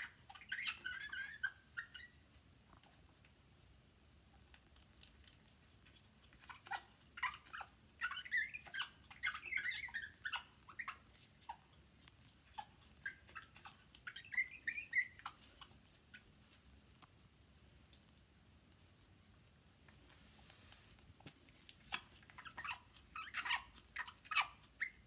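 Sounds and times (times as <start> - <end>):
parrot chirps squeaks and clicks: 0.0 - 2.3, 4.5 - 16.3, 21.3 - 25.0.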